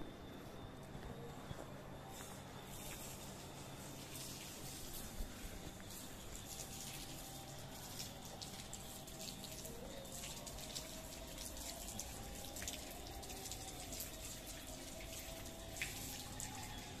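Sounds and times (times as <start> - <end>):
drips splashing on tiled floor: 2.1 - 17.0
water running from tap: 5.8 - 17.0.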